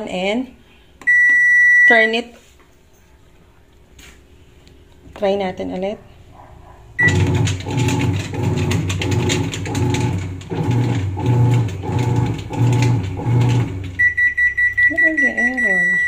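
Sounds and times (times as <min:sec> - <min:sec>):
short control panel beep: 0:01.0 - 0:02.0, 0:14.0 - 0:16.0
washing machine motor strokes: 0:07.0 - 0:14.8.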